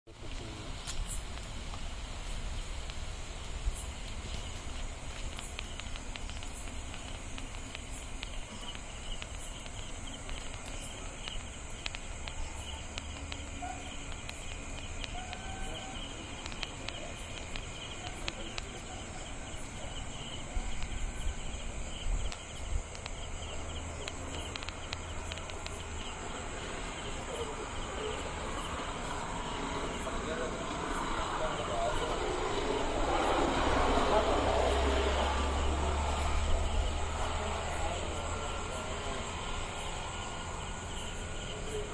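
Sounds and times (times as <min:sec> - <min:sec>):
crickets chirping: 0:00.1 - 0:41.9.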